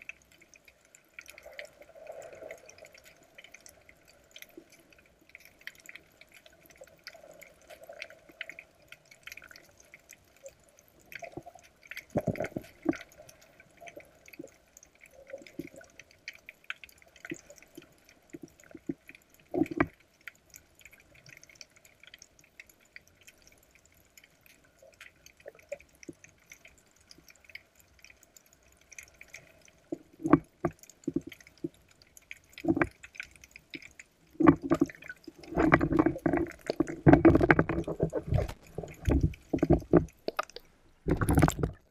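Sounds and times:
underwater water noise: 0.0s - 41.9s
clicks and knocks: 35.5s - 41.8s.

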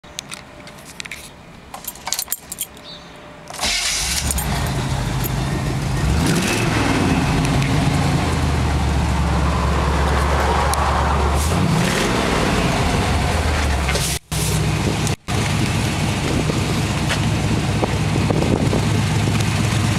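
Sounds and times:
keys jangling: 0.7s - 2.8s
engine starting and running: 3.5s - 19.9s.

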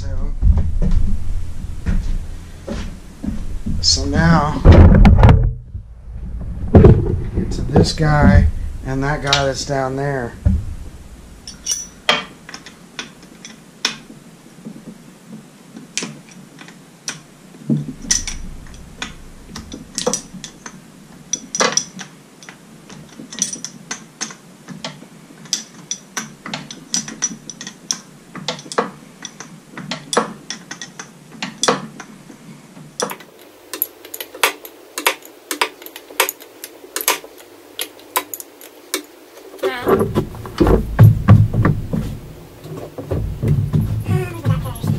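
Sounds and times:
hand tool clicking on metal: 33.0s - 39.5s.

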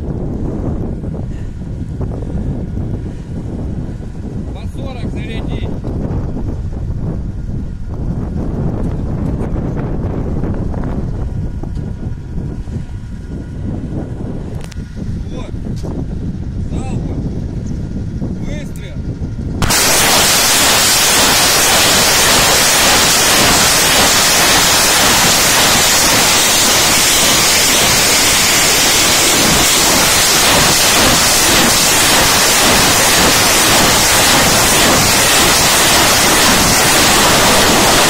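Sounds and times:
rockets launching rushing noise: 19.6s - 38.0s.

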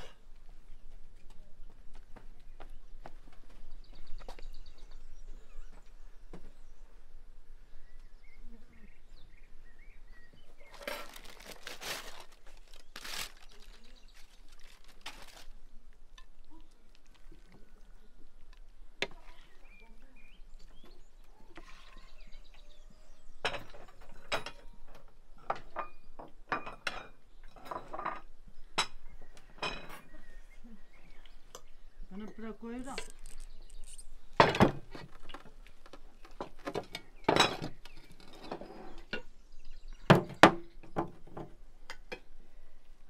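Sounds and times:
tableware scraping: 25.5s - 29.0s, 29.6s - 30.1s, 37.3s - 39.2s
plates and cutlery clinking: 29.6s - 30.1s.

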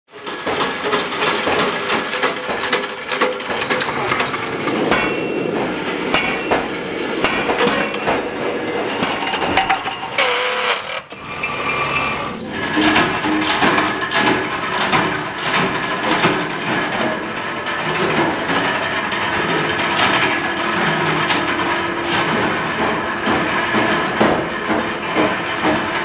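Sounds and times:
machine cutting metal: 0.2s - 26.0s
steel clinking and knocking: 0.3s - 12.1s.

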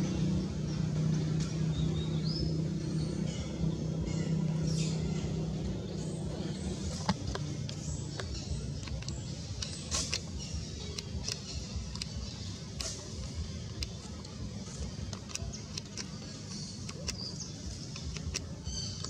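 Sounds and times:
sharp clicks and ticks: 5.0s - 19.0s.

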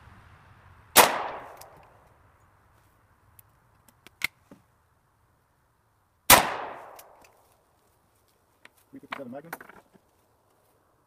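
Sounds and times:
rifle shot echo: 0.9s - 1.8s, 6.3s - 7.2s.

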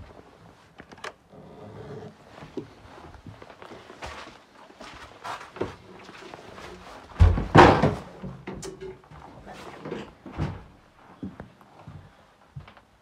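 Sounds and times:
footsteps: 1.8s - 8.2s, 9.0s - 12.9s
door banging shut: 7.2s - 8.7s.

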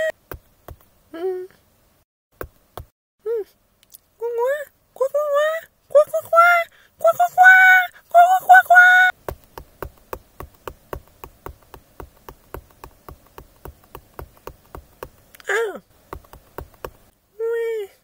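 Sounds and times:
fast sharp taps: 0.2s - 0.9s, 9.1s - 17.1s
high-pitched cartoon voice crying: 6.0s - 9.1s.

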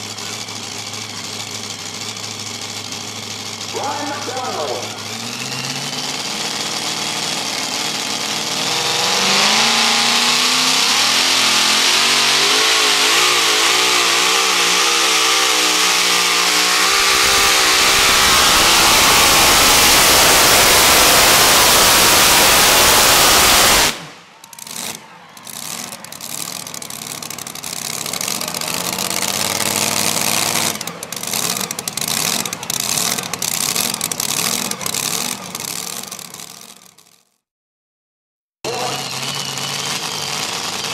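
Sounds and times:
truck engine revving at full throttle: 0.0s - 37.0s, 38.7s - 40.9s
engine pops and crackles: 11.0s - 37.3s.

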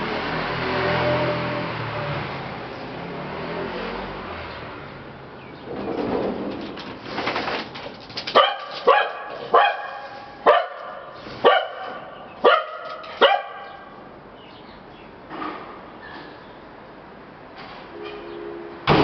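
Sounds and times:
dog barking: 8.3s - 14.0s.

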